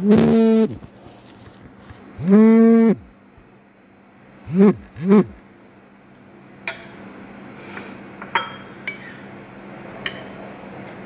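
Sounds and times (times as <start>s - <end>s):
cutlery clinking on a plate: 8.2s - 9.3s, 10.0s - 10.4s.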